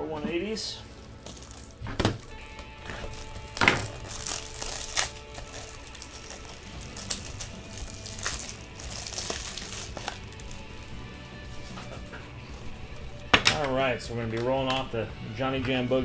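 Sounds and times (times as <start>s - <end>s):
plastic wrapper crinkling: 0.4s - 14.8s.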